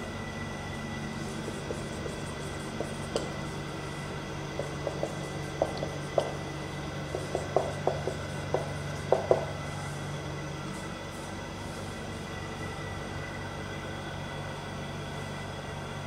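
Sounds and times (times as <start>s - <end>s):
steady room hum: 0.0s - 16.0s
marker writing on whiteboard: 1.2s - 3.6s, 4.5s - 6.4s, 7.1s - 9.5s.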